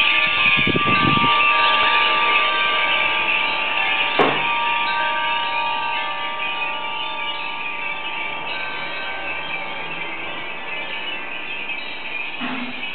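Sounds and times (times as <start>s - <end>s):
wind chimes ringing: 0.0s - 12.9s
sharp knock: 4.2s - 4.4s.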